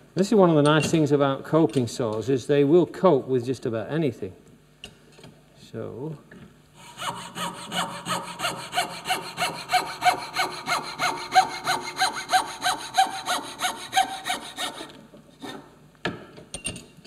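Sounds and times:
coping saw cutting wood: 0:06.8 - 0:15.7.

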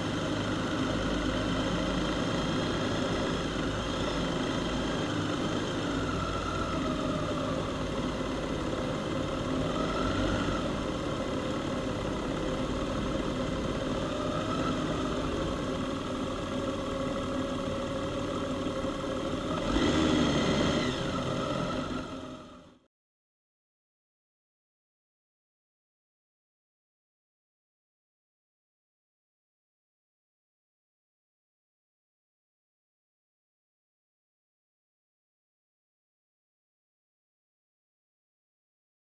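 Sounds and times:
motorcycle engines running: 0:00.0 - 0:22.8.

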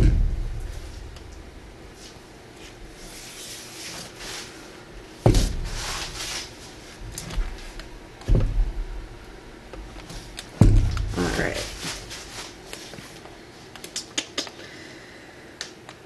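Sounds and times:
dull thumps: 0:00.0 - 0:01.4, 0:05.2 - 0:06.3, 0:07.0 - 0:09.0, 0:09.7 - 0:12.5
gloved hand rubbing canvas: 0:01.9 - 0:07.8, 0:11.0 - 0:13.2.

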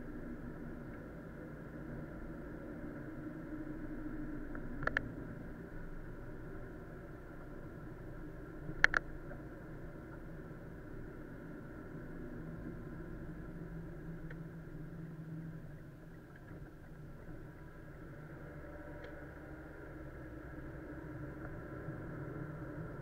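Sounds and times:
car engine and road noise: 0:00.0 - 0:23.0
faint tick: 0:14.2 - 0:14.4.

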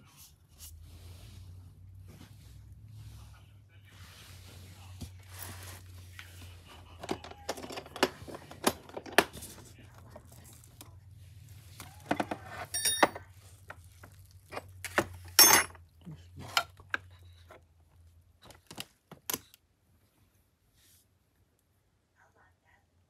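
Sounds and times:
plastic wrap rustling: 0:13.2 - 0:15.2.

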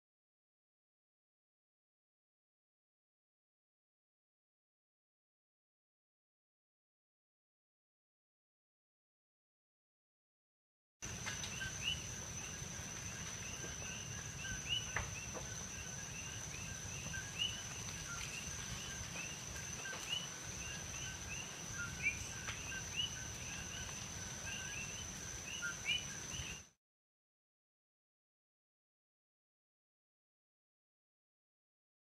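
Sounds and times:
frogs calling: 0:11.1 - 0:26.7.

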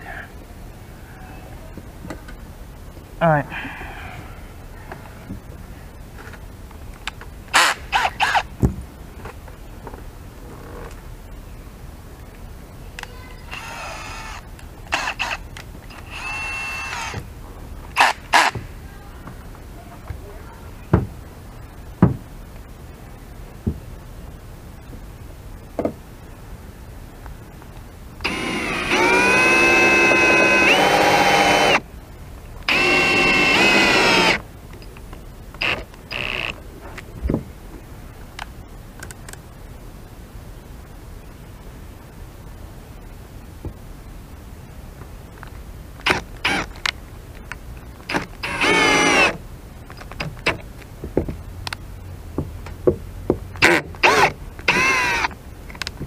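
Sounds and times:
cordless driver whining: 0:13.5 - 0:17.2, 0:28.2 - 0:31.8, 0:32.6 - 0:34.4, 0:35.6 - 0:36.5, 0:46.0 - 0:46.7, 0:48.1 - 0:49.4, 0:53.6 - 0:55.4.

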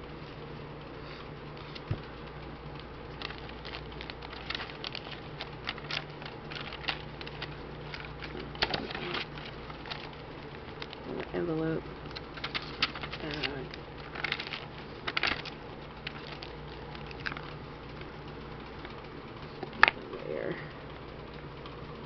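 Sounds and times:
faint low hum: 0:00.0 - 0:22.0
paper pages rustling: 0:03.1 - 0:11.0, 0:12.1 - 0:17.6.

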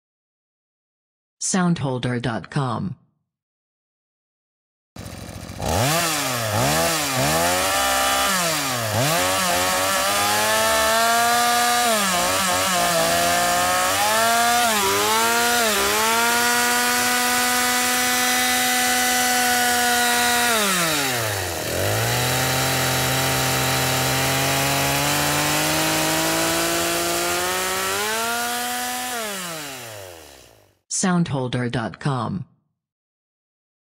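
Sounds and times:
chainsaw cutting wood: 0:05.0 - 0:30.8
chainsaw engine revving: 0:05.0 - 0:30.8.

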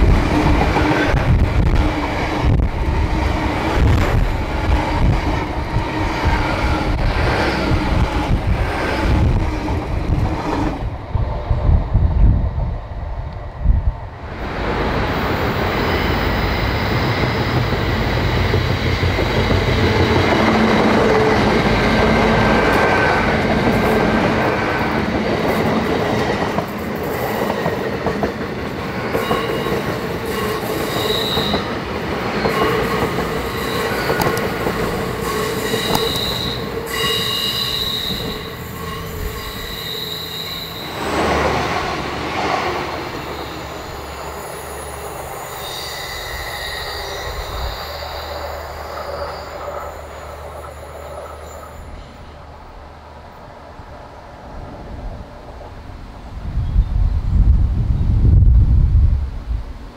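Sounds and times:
passenger train passing: 0:00.0 - 0:59.9
train wheels squealing: 0:15.7 - 0:22.2, 0:29.1 - 0:31.8, 0:32.4 - 0:41.5, 0:43.1 - 0:52.3.

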